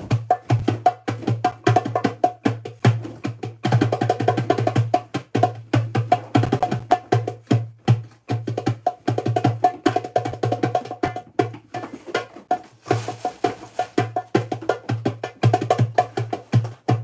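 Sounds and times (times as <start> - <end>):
drums struck with sticks: 6.4 - 7.2.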